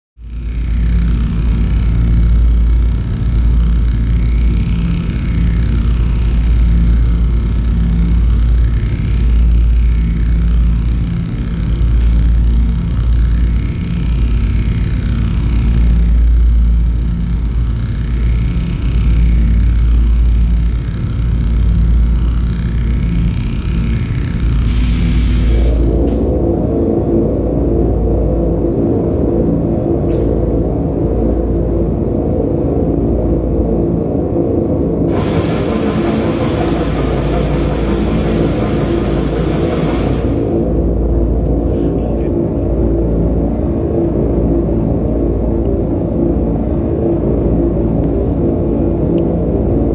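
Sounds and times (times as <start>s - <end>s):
deep electronic drone: 0.2s - 49.9s
sweeping high tone: 35.1s - 41.4s.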